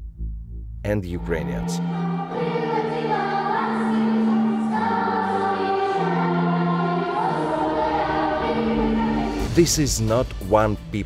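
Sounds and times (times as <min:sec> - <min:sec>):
choir singing sustained chords: 0:01.7 - 0:09.6.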